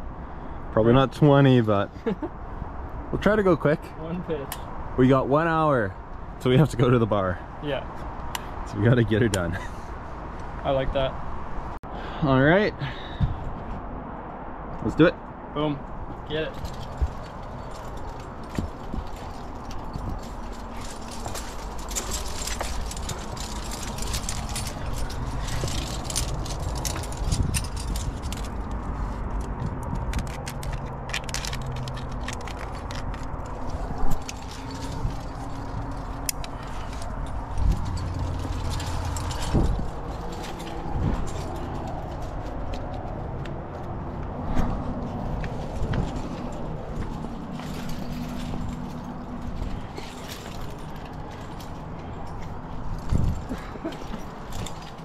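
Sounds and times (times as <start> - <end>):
climbing gear clinking: 16.3 - 43.2, 45.3 - 55.0.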